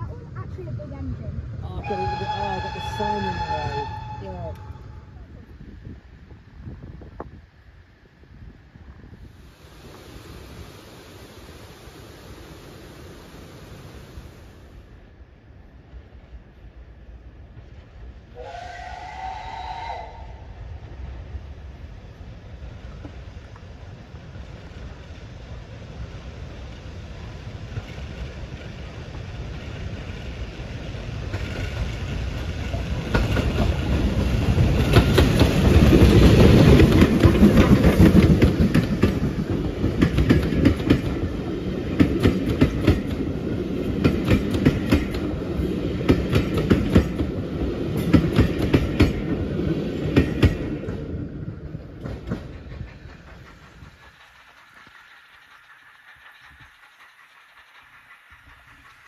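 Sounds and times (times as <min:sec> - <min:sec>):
steam locomotive passing: 0:00.0 - 0:59.0
train wheels clickety-clack: 0:22.8 - 0:59.0.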